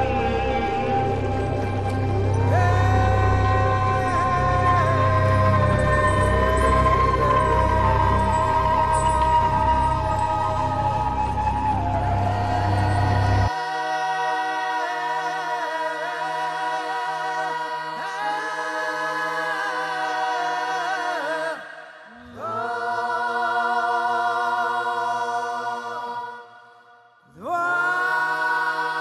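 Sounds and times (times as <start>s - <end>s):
low steady drone: 0.0s - 13.5s
wordless singing with vibrato: 0.0s - 29.0s.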